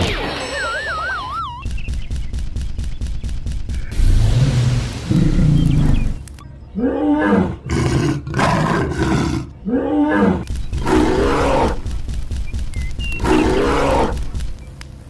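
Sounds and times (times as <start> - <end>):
low rumbling rush: 3.7 - 6.8
dinosaur growling roars: 3.9 - 6.2, 6.8 - 11.8, 13.2 - 14.2.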